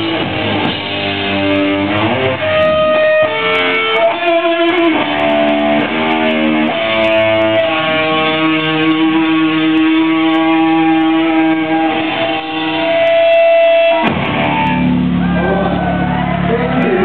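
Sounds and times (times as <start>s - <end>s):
distorted electric guitars: 0.0s - 17.0s
crowd shouting: 5.0s - 17.0s.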